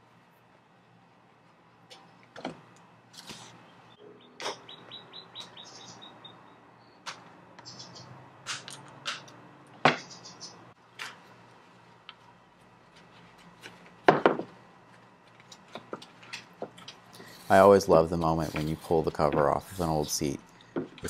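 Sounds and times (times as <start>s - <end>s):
high chirping squeaks: 3.9s - 7.0s, 7.6s - 8.1s, 10.0s - 10.6s.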